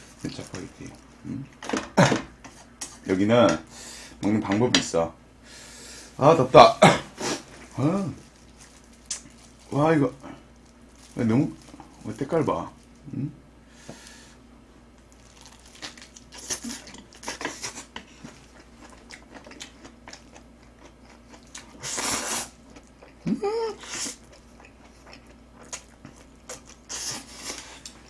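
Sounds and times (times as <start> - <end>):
chewing and crunching food: 7.4 - 13.1, 15.0 - 28.0.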